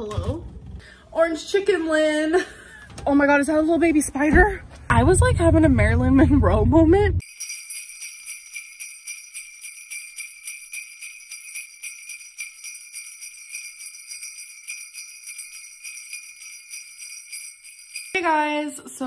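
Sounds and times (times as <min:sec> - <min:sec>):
sleigh bells jingling: 0:07.2 - 0:19.0.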